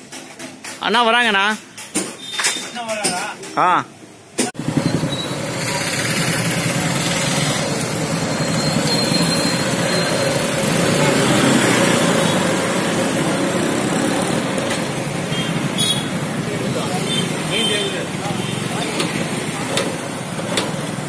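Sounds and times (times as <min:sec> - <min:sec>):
road noise: 0:00.0 - 0:21.0
motorcycles passing close by: 0:04.6 - 0:21.0.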